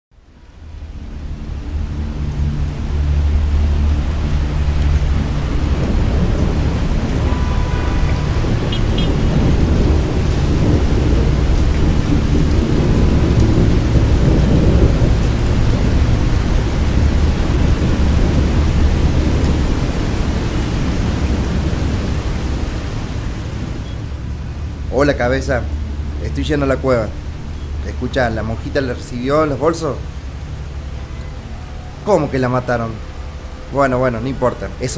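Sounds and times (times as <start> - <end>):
heavy rain: 0.1 - 34.9
low rumble of thunder: 0.8 - 25.0.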